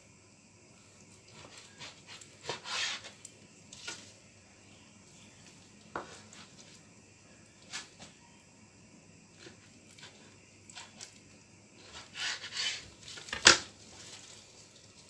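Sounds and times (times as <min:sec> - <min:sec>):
knife scraping board: 0:01.3 - 0:03.2, 0:11.8 - 0:13.4.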